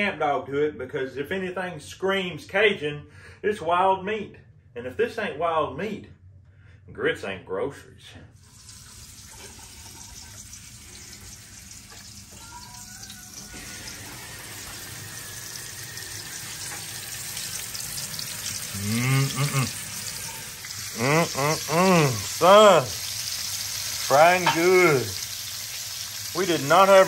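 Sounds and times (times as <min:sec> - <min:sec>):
oil sizzling and crackling: 0:08.4 - 0:27.0
person speaking: 0:18.7 - 0:19.8, 0:20.9 - 0:23.0, 0:24.1 - 0:25.2.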